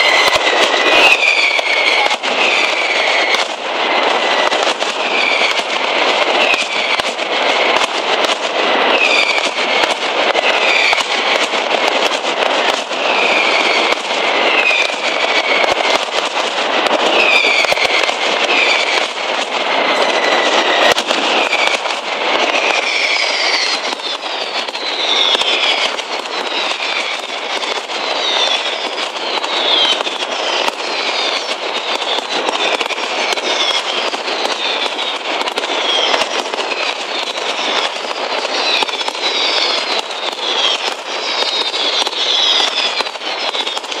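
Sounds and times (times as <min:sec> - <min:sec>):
firecrackers banging: 0:00.0 - 0:44.0
whistling fireworks shrieking: 0:00.0 - 0:44.0.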